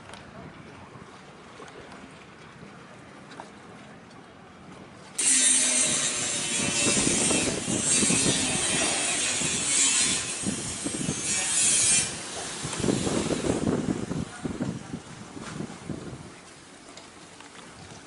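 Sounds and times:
harsh rasping mechanical noise: 0:05.2 - 0:13.5.

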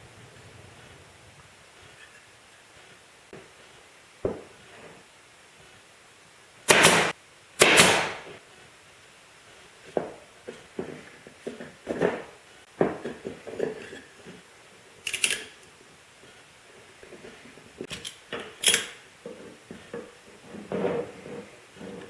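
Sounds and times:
pneumatic nailer firing into wood: 0:06.7 - 0:08.3.

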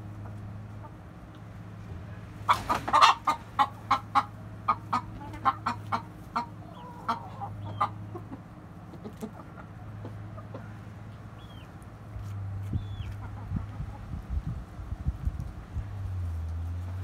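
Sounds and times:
chickens clucking: 0:00.0 - 0:15.6.

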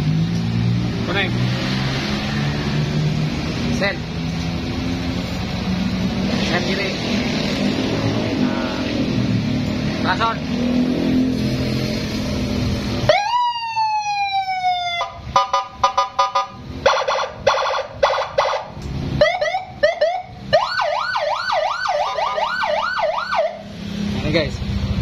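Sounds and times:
electronic siren cycling tones: 0:13.1 - 0:23.6.

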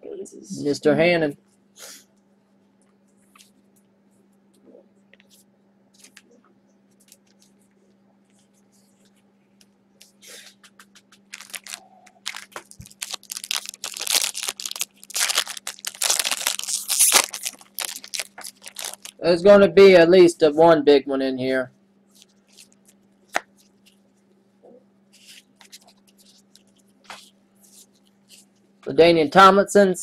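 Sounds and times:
wrapper tearing and crumpling: 0:11.3 - 0:19.2.

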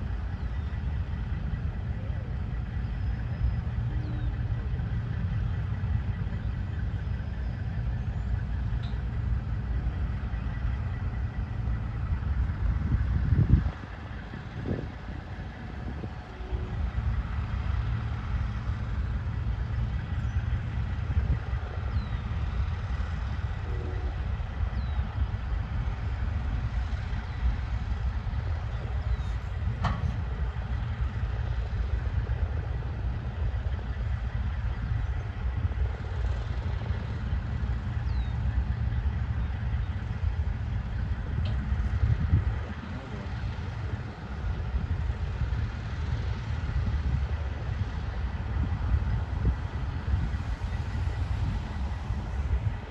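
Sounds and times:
truck diesel engines rumbling: 0:00.0 - 0:52.9.

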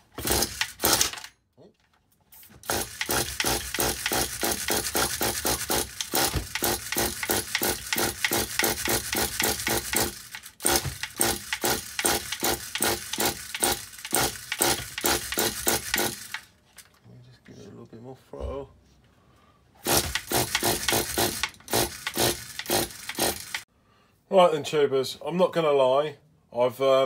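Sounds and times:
engine turning over: 0:00.2 - 0:01.3, 0:02.6 - 0:16.5, 0:19.8 - 0:23.6.

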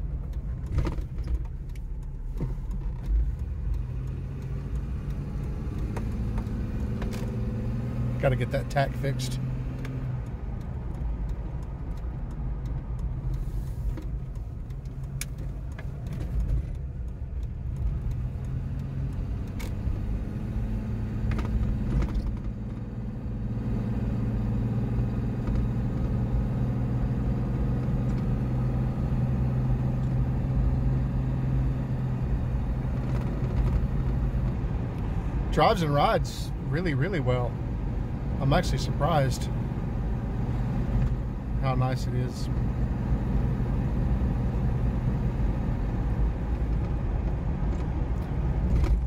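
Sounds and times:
car engine running: 0:00.0 - 0:49.0
tyre and road noise: 0:00.0 - 0:49.0
light clicks and rattles: 0:09.8 - 0:20.0.

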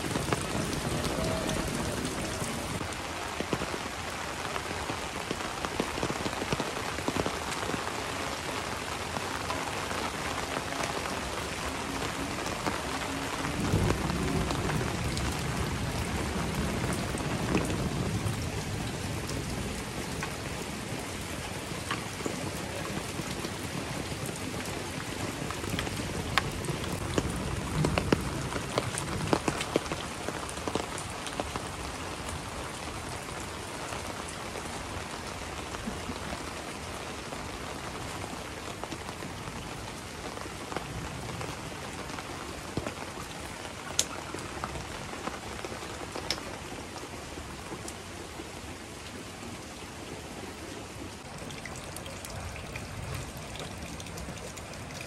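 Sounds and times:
heavy rain falling: 0:00.0 - 0:55.0
raindrops ticking close by: 0:00.0 - 0:55.0.

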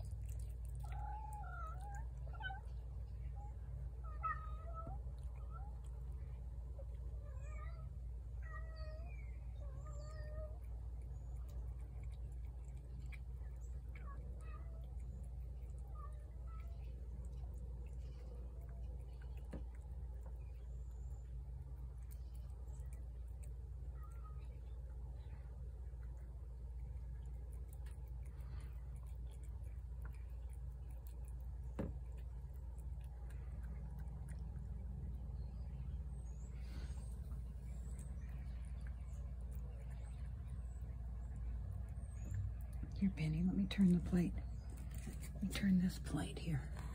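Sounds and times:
cat chewing clicks: 0:00.0 - 0:02.7, 0:10.3 - 0:35.8
steady low hum: 0:00.0 - 0:46.9
cat meowing: 0:00.3 - 0:05.9, 0:07.2 - 0:10.7.

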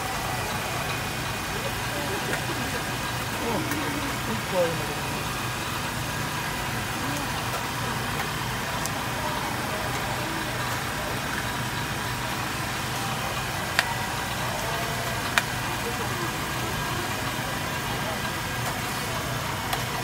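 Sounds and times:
engine running hum: 0:00.0 - 0:20.0.

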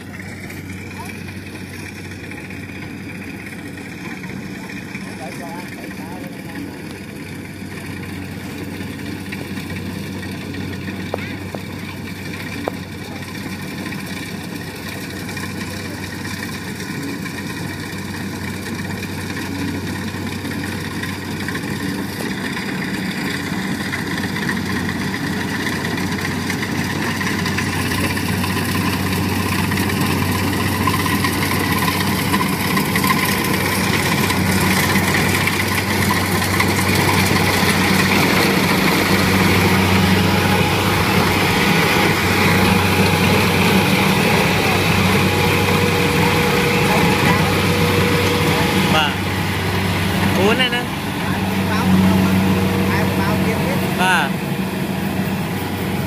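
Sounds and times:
combine harvester engine running: 0:00.0 - 0:56.0.

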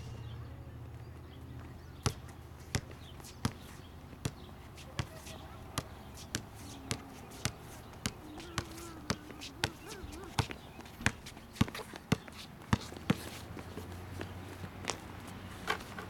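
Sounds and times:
basketball bouncing on hard court: 0:02.0 - 0:05.2, 0:05.8 - 0:13.2.

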